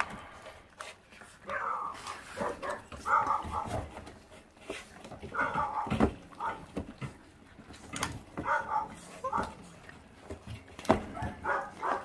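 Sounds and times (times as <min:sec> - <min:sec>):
puppies chewing and crunching bones: 0:00.0 - 0:12.0
puppy crying: 0:08.5 - 0:09.6.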